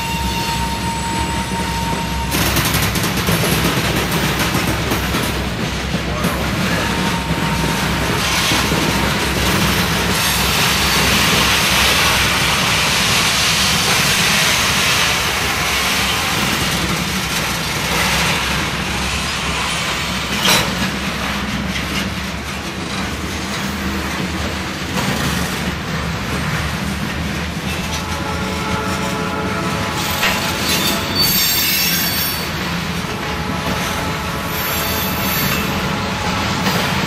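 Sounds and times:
freight cars rumbling on rails: 0.0s - 37.0s.

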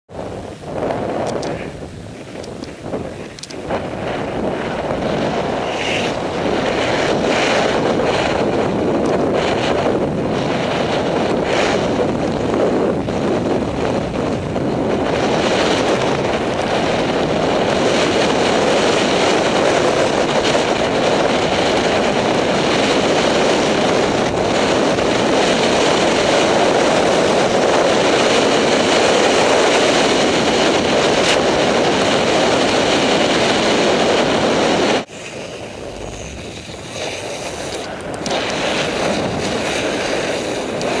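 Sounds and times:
wind rushing over microphone: 0.1s - 41.0s
snow hissing under skis: 1.5s - 8.4s, 34.6s - 41.0s.

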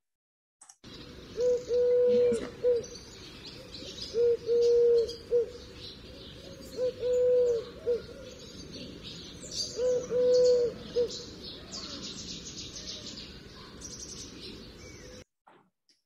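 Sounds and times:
small birds chirping: 0.8s - 15.3s
dove cooing: 1.4s - 12.0s.

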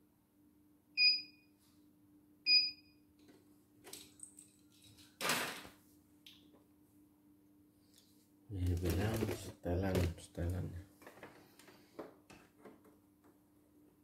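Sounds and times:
rustling handling noise: 8.0s - 11.9s.

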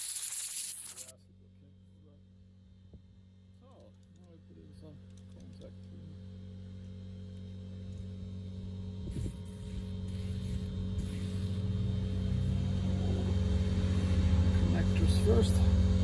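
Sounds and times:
aerosol can spraying: 0.0s - 1.1s, 9.1s - 11.7s
low motor hum: 1.3s - 16.0s.

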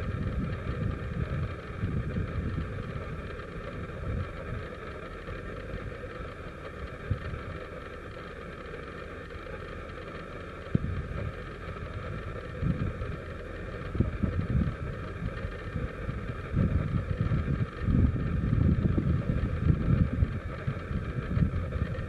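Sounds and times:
wind buffeting microphone: 0.0s - 4.6s, 10.7s - 22.0s
engine running: 0.0s - 22.0s.

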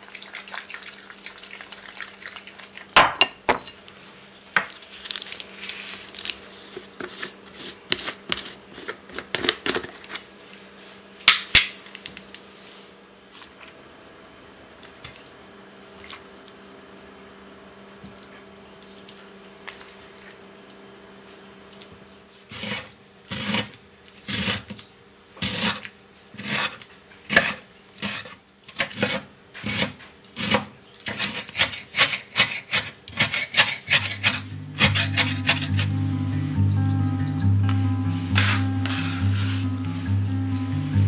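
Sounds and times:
rhythmic rasping food preparation: 3.6s - 11.1s, 21.9s - 41.0s
faint steady hum: 33.0s - 41.0s.

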